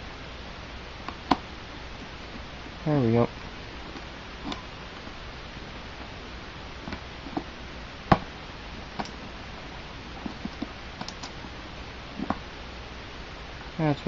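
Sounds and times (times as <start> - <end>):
fingers picking at tape: 10.2 - 11.4.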